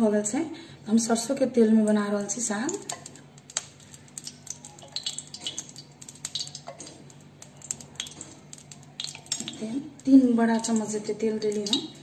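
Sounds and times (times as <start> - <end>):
metal bowl and spoon clinking: 4.5 - 9.8.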